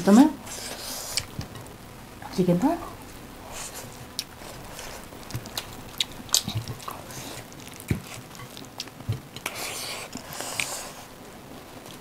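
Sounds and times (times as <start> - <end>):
chewing with wet smacks: 4.1 - 11.0.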